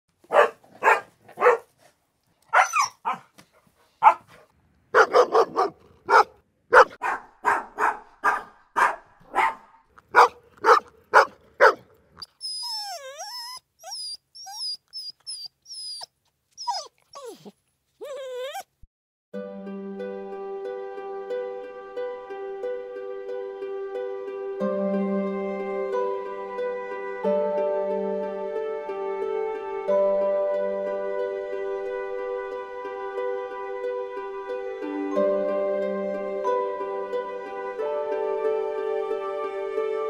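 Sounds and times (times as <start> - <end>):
dog barking: 0.2 - 1.7, 2.5 - 3.4, 4.0 - 11.8
dog whining and yelping: 2.5 - 3.3, 10.2 - 18.8.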